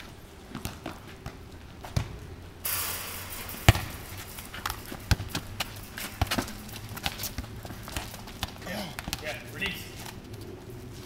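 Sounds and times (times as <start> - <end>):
burst of hiss: 2.7 - 4.6
football thuds on tarmac: 4.6 - 9.4.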